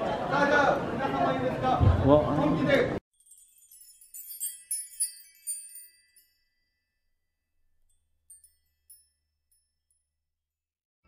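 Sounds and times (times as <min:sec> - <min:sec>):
chime-like glockenspiel notes: 0:03.1 - 0:10.4.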